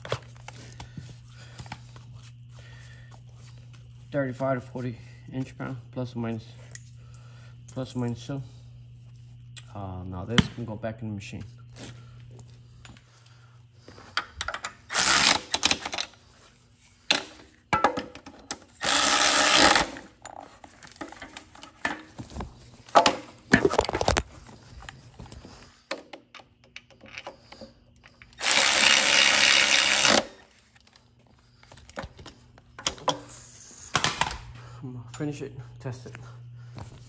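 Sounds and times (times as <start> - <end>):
cordless drill driving bolts: 14.9 - 16.0, 18.8 - 20.0, 28.4 - 30.3.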